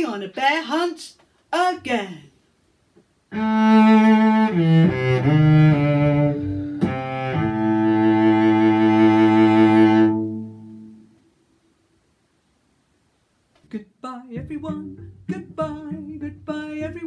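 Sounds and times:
low bowed string instrument: 0:03.3 - 0:11.0, 0:14.4 - 0:17.0.

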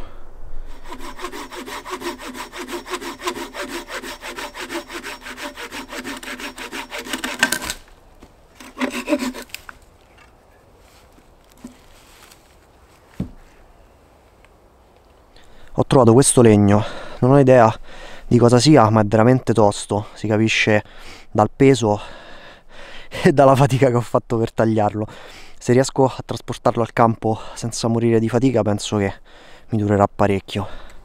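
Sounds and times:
hand saw cutting log: 0:00.7 - 0:07.8, 0:08.6 - 0:09.8.

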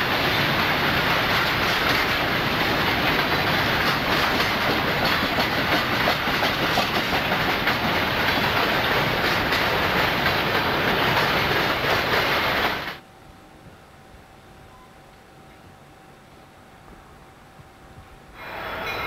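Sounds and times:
freight train cars rolling past: 0:00.0 - 0:13.0, 0:16.7 - 0:19.0
wheels clicking over rail joints: 0:00.0 - 0:13.0
low hum with faint tone: 0:13.0 - 0:18.4.

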